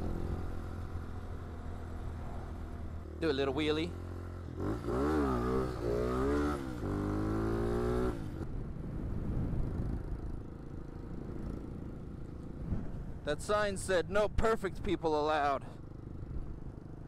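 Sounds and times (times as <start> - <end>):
motorcycle engine revving: 0.0 - 8.5
wind noise: 7.3 - 15.0.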